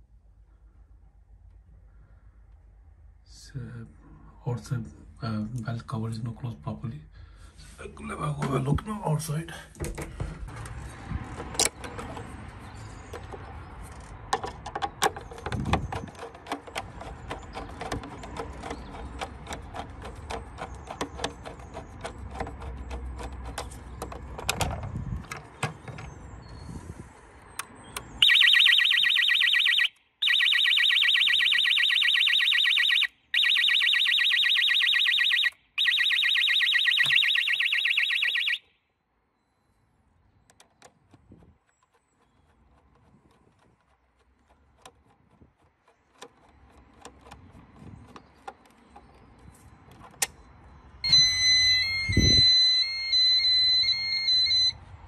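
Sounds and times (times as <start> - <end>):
screwdriver and handling clicks: 13.1 - 26.2
alarm siren pulsing: 28.2 - 38.8, 51.0 - 54.8.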